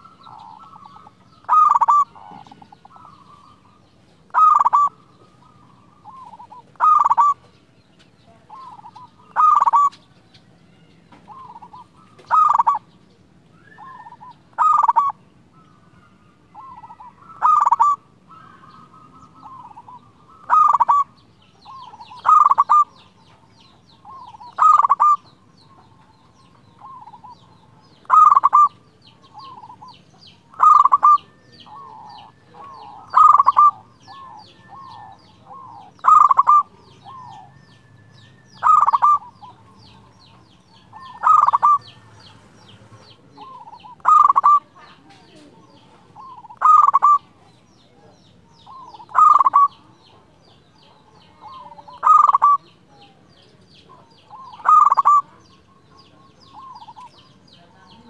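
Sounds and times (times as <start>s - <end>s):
dove cooing: 0.0s - 7.6s, 8.2s - 13.0s, 13.6s - 58.0s.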